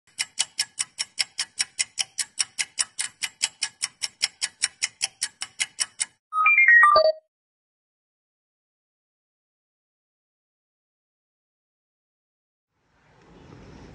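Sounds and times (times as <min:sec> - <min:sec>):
fast even ticking: 0:00.1 - 0:06.2.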